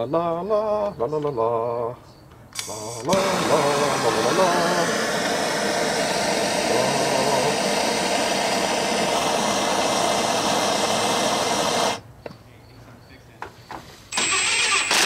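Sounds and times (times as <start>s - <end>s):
gas torch hissing: 2.6s - 12.0s, 14.1s - 15.0s.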